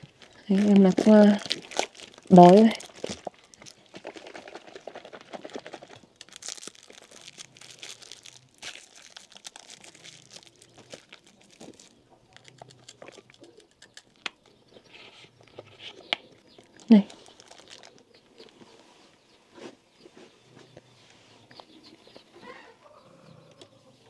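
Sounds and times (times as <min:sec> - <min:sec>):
plastic wrappers crinkling: 0:00.0 - 0:14.6, 0:15.4 - 0:18.8.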